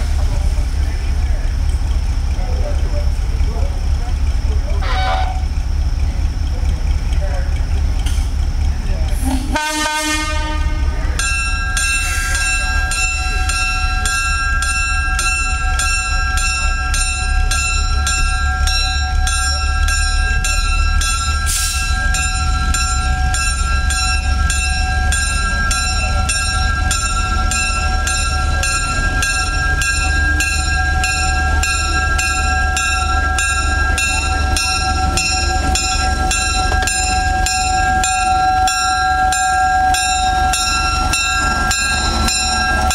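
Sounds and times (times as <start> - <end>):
locomotive bell ringing: 0.0 - 42.9
locomotive engine rumble: 0.0 - 42.9
locomotive horn blast: 4.8 - 5.5, 9.2 - 11.0.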